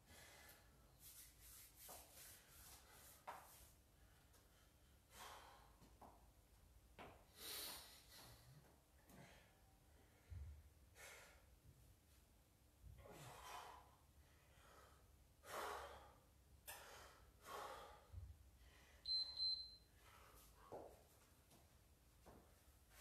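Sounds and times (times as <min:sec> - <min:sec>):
person breathing hard: 0:00.0 - 0:00.8, 0:04.2 - 0:05.9, 0:07.3 - 0:11.6, 0:13.0 - 0:19.1
high electronic beep: 0:19.1 - 0:19.8.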